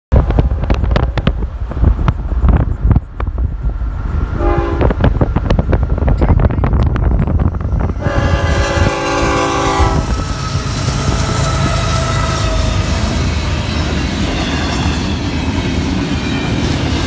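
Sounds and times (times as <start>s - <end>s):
freight cars rumbling and rattling: 0.1s - 17.0s
train horn blast: 4.4s - 5.1s, 8.0s - 15.1s.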